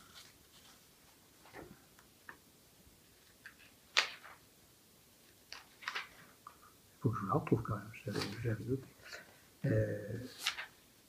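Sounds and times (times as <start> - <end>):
book pages turning: 3.1 - 4.4, 5.2 - 6.3, 8.1 - 8.6, 10.3 - 10.8.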